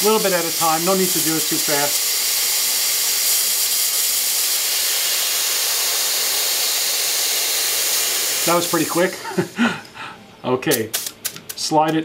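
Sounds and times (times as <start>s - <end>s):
compressed air hissing: 0.0s - 11.8s.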